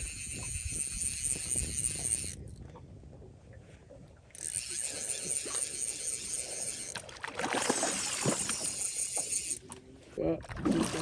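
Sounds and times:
fish splashing in water: 0:07.0 - 0:09.3, 0:10.5 - 0:11.0.

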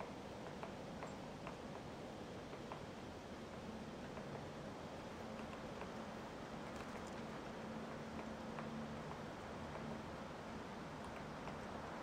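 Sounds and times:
faint ticks: 0:05.3 - 0:06.0, 0:11.0 - 0:11.7.

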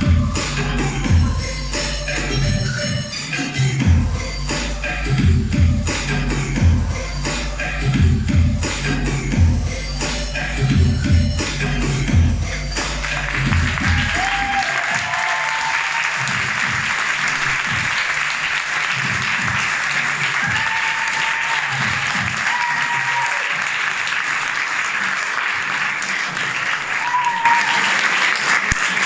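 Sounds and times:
background music with a beat: 0:00.0 - 0:23.9
audience applauding: 0:13.0 - 0:29.0.

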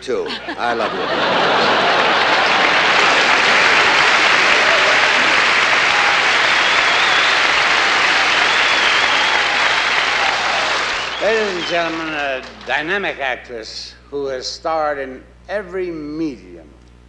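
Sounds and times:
large audience applauding: 0:00.7 - 0:13.2.

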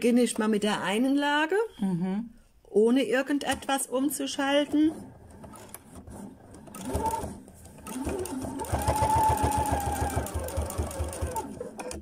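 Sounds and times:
sewing machine stitching leather: 0:04.8 - 0:12.0.

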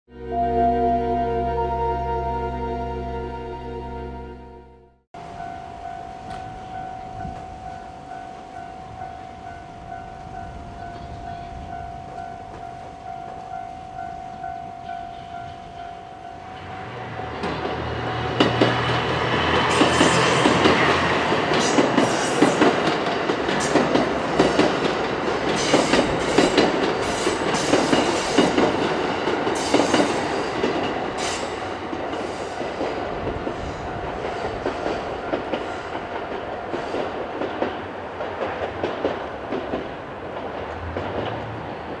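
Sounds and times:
level crossing bell ringing: 0:00.1 - 0:10.6
train wheels clattering over rail joints: 0:17.3 - 0:42.0.

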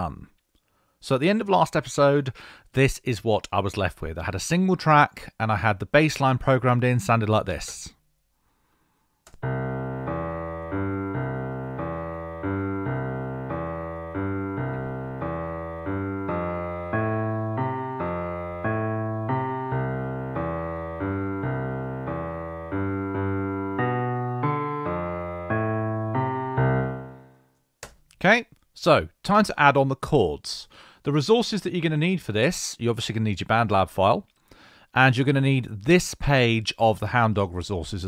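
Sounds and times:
piano-like bass line: 0:09.4 - 0:27.4.

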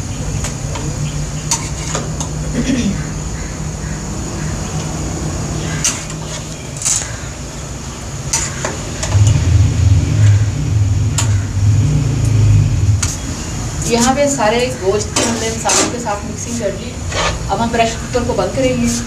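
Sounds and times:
metal spoon scraping a pot: 0:01.5 - 0:02.1, 0:05.8 - 0:07.1, 0:08.3 - 0:09.3, 0:17.0 - 0:17.5
steady low rumble: 0:09.0 - 0:15.0.

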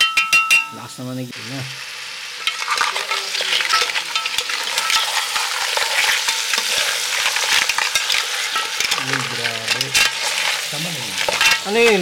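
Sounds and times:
sizzling in a pot: 0:00.0 - 0:12.0
spatula scraping shells against pot: 0:02.4 - 0:12.0.

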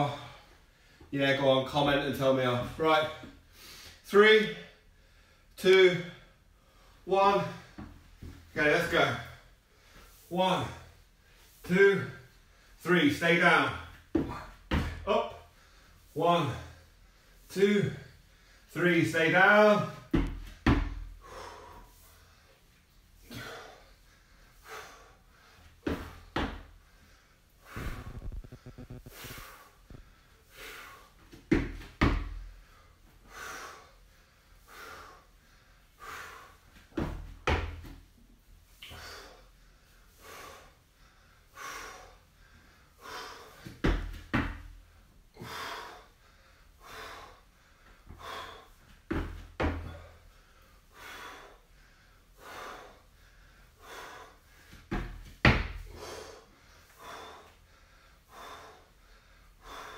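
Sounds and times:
man breathing hard: 0:00.0 - 0:01.1, 0:03.2 - 0:12.8, 0:13.7 - 0:18.8, 0:19.5 - 0:59.9
dull thumps: 0:14.1 - 0:15.1, 0:27.7 - 0:30.1.

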